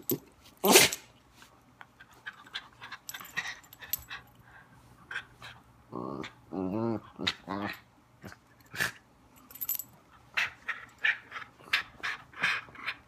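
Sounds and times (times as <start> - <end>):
collar tags jingling: 2.8 - 4.4, 9.4 - 10.0.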